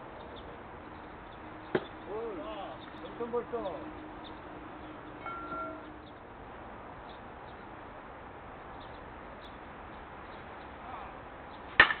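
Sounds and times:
outdoor background noise: 0.0s - 12.0s
faint chime-like tone: 5.2s - 5.9s.

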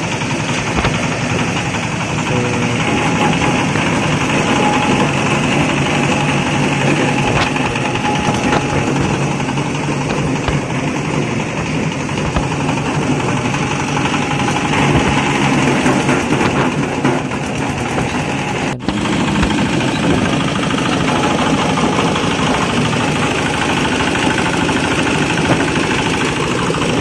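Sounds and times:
shredding machine: 0.0s - 27.0s
small diesel engine running: 0.0s - 27.0s.

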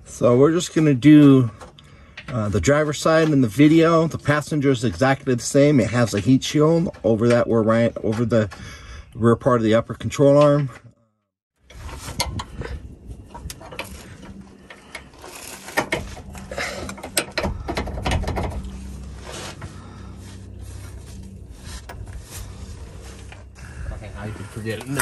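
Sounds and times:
low steady hum: 11.6s - 25.0s.

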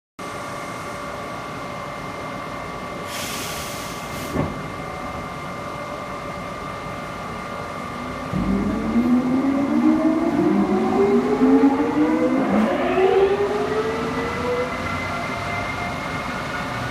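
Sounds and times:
equipment hum: 0.2s - 16.9s
short hiss: 3.1s - 4.4s
thump: 4.3s - 4.6s
electrical whine: 7.2s - 16.9s
rising multi-tone motor whine: 7.3s - 16.9s.

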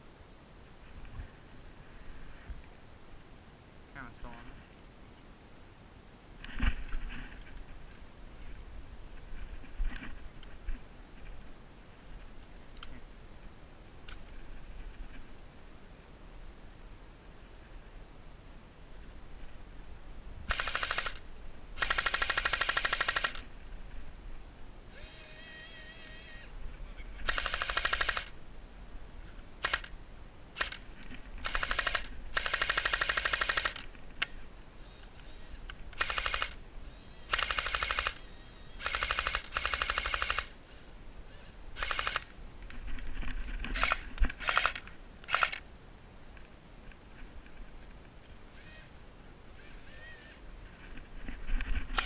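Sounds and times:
airsoft machine gun rattling bursts: 20.5s - 23.5s, 27.2s - 28.4s, 29.6s - 29.9s, 30.6s - 34.0s, 35.1s - 36.6s, 37.2s - 40.7s, 41.8s - 42.3s, 42.9s - 45.6s.

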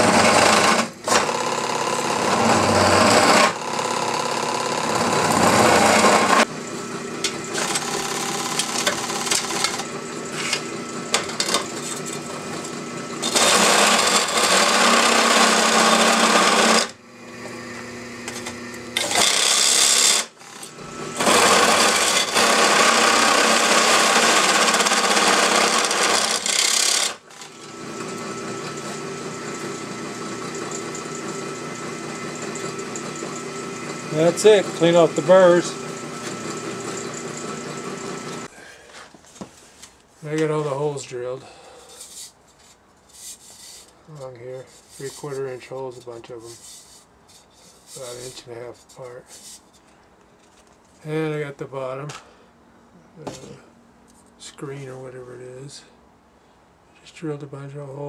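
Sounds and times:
drill bit grinding through steel: 0.0s - 38.5s
drill press motor hum: 0.0s - 38.5s.

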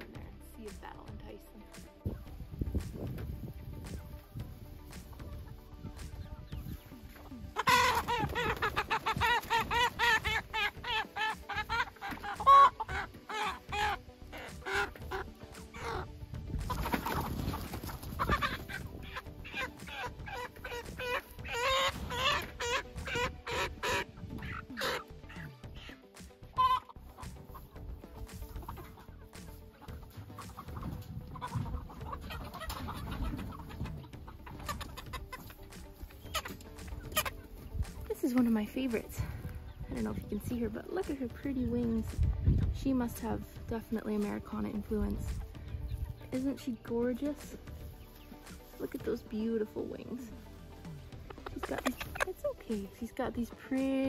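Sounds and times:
young hens calling: 2.0s - 54.0s
chicken squawking alarm calls: 7.6s - 16.1s, 16.7s - 27.2s.

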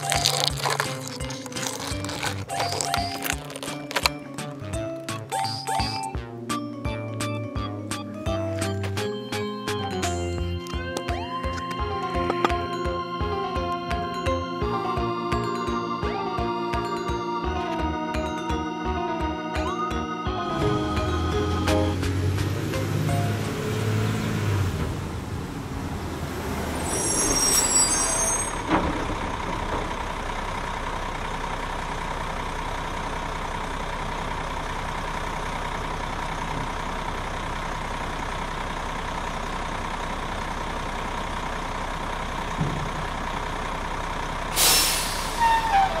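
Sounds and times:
trash tipping out: 0.0s - 6.1s
garbage truck whine: 0.0s - 46.0s
high squeal: 26.6s - 28.7s, 44.6s - 46.0s
air hiss: 44.6s - 45.7s.

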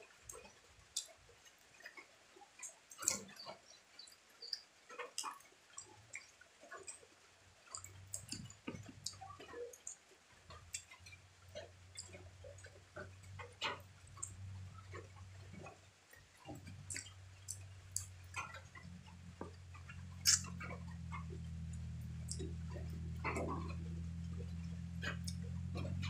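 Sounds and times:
wet chewing sounds: 0.3s - 26.0s
low hum: 10.5s - 26.0s.

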